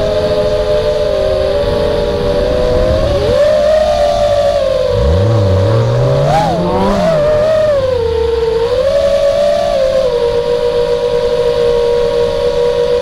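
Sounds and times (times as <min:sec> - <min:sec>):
quadcopter motors whining: 0:00.0 - 0:13.0
deeper tone climbing: 0:01.5 - 0:10.7
low rumble: 0:02.2 - 0:09.1.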